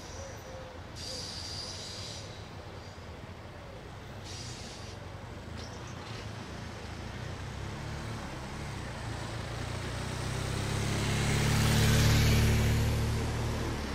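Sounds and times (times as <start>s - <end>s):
car passing: 3.9s - 13.9s
motorcycle engine passing: 5.6s - 13.9s.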